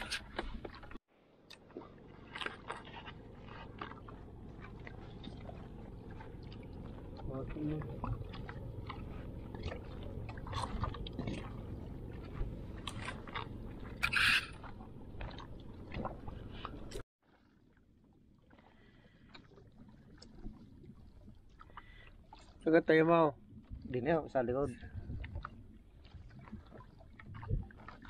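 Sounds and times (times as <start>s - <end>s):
low rumble: 1.8s - 17.0s.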